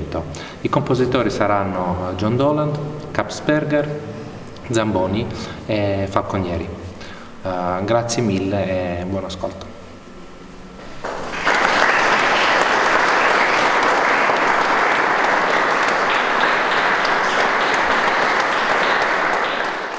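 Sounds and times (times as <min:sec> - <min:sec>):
audience applauding: 0:10.8 - 0:19.9.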